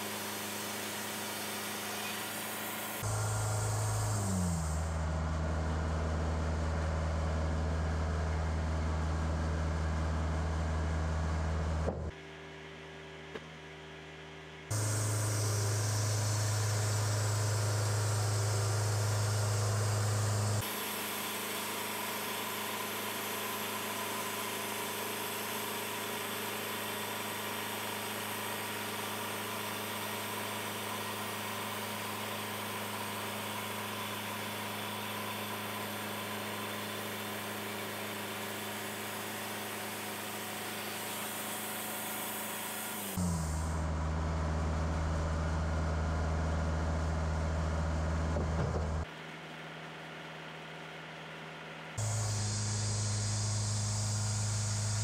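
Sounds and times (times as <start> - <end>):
band saw blade cutting log: 0.0 - 5.0, 14.7 - 30.3
sawmill engine running: 0.0 - 13.0, 14.7 - 50.6, 51.4 - 55.0.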